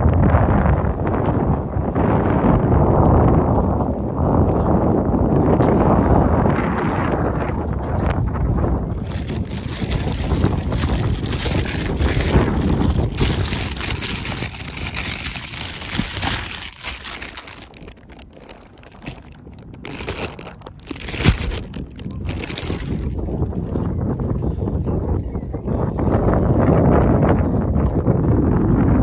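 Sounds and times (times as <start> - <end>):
plastic bags rustling: 8.9 - 23.4.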